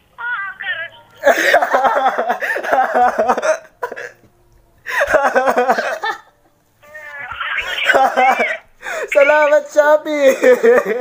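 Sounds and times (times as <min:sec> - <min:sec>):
young man laughing hard: 0:01.2 - 0:04.2, 0:04.9 - 0:09.4, 0:10.2 - 0:11.0.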